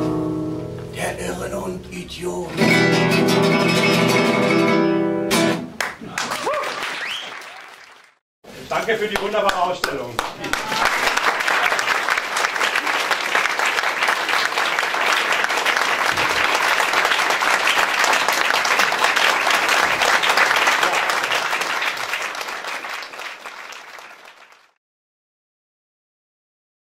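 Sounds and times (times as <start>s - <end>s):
audience applauding: 5.7s - 8.2s, 8.8s - 24.8s.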